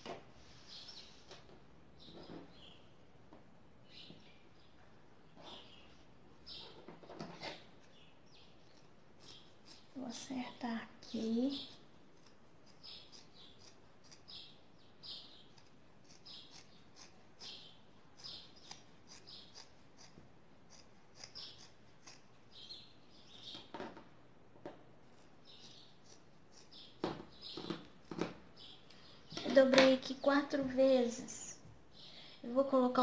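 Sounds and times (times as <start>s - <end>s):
scissors cutting fabric: 18.2s - 22.4s.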